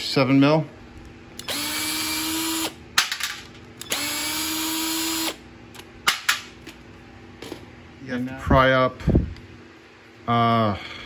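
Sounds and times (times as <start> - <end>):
cordless drill running: 1.4 - 2.8, 3.8 - 5.4.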